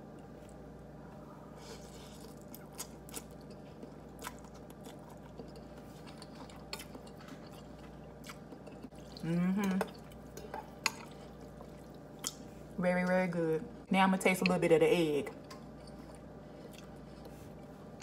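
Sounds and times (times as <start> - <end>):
person chewing noodles: 1.6 - 9.3, 9.9 - 12.7, 15.4 - 17.8.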